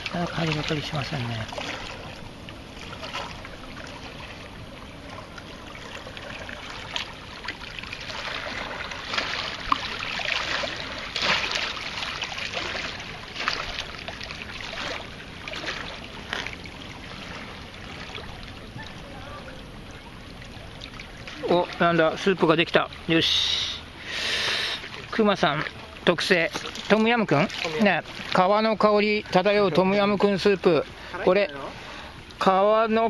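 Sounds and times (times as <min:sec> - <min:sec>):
river water lapping on rocks: 0:00.0 - 0:33.0
water splashing surges: 0:00.0 - 0:33.0.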